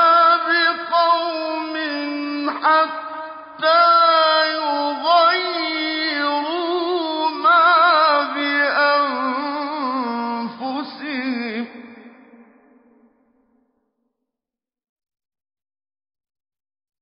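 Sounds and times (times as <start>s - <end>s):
man chanting melodically: 0.0s - 12.3s.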